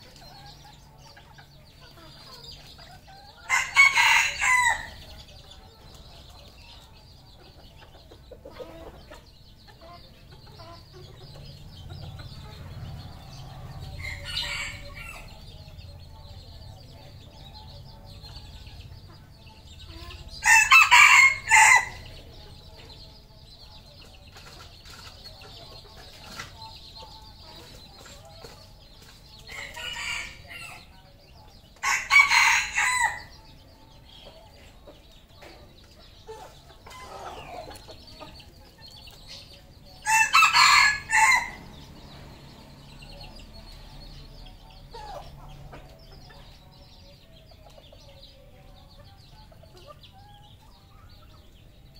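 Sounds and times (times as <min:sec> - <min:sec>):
roosters crowing: 0:02.4 - 0:05.5, 0:10.8 - 0:15.8, 0:19.6 - 0:22.7, 0:29.3 - 0:31.1, 0:31.8 - 0:33.6, 0:39.2 - 0:45.5.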